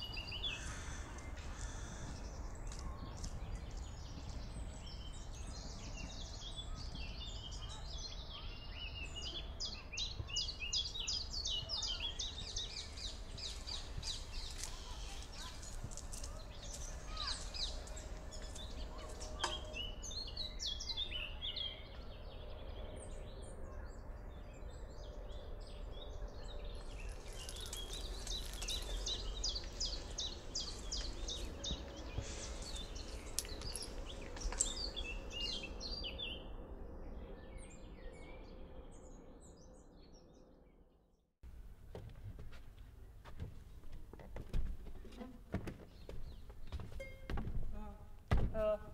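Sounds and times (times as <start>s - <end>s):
birds chirping and singing: 0.0s - 40.5s
low outdoor rumble: 11.6s - 39.1s.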